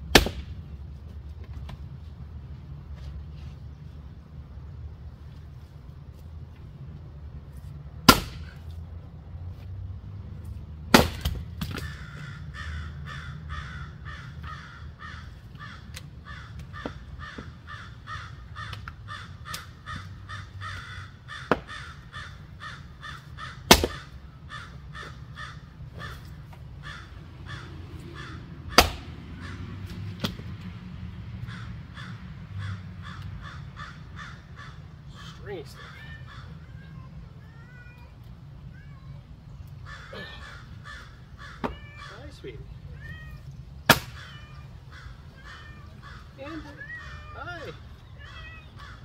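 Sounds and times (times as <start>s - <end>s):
splitting tool striking firewood: 0.1s - 0.4s, 8.1s - 8.5s, 10.9s - 11.8s, 23.7s - 24.0s, 28.7s - 29.1s, 43.9s - 44.2s.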